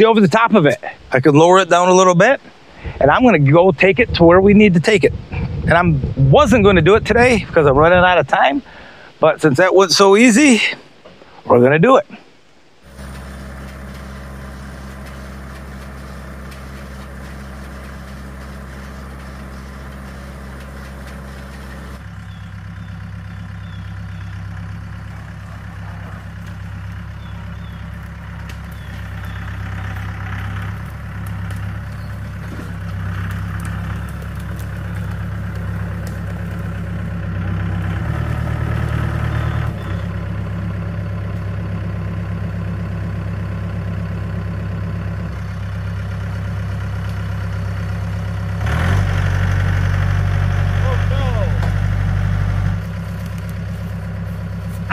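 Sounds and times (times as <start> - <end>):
tractor diesel engine running: 0.0 - 54.9
faint bird chirps: 22.1 - 24.6, 27.1 - 29.8.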